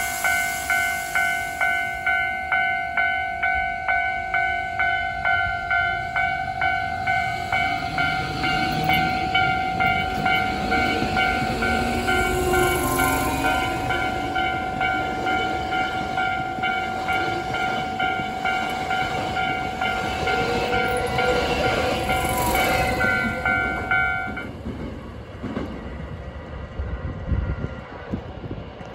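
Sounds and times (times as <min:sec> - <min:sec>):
electric train rumbling past: 0:00.0 - 0:28.9.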